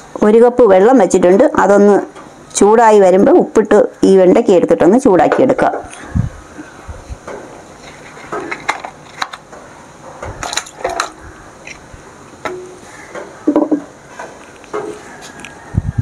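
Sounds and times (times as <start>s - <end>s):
kitchen knocks and clinks: 13.5s - 13.9s.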